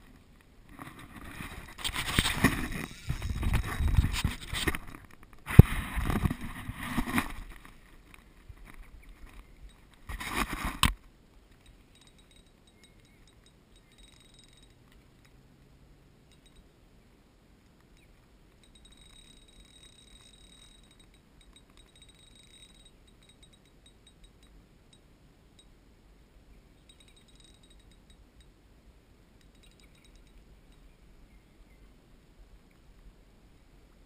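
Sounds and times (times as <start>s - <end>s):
faint rapid ticking: 11.4s - 15.4s, 17.8s - 25.7s, 26.8s - 28.5s.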